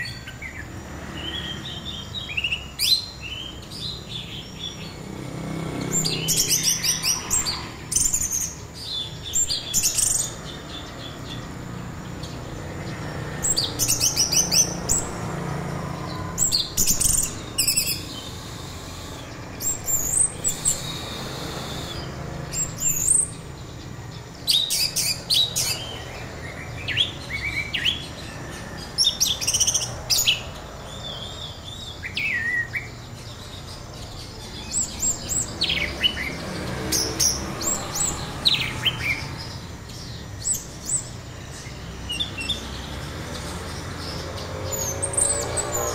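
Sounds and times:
lower whistled bird phrases: 16.2s - 23.4s, 29.0s - 36.4s
thrush singing fast high notes: 17.4s - 22.5s.

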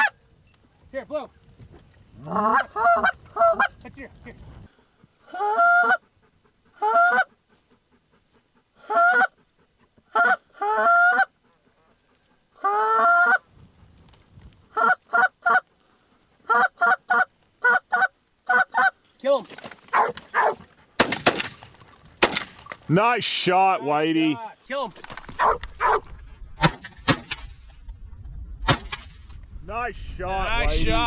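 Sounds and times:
goose clucking: 14.7s - 15.7s, 16.4s - 19.0s.

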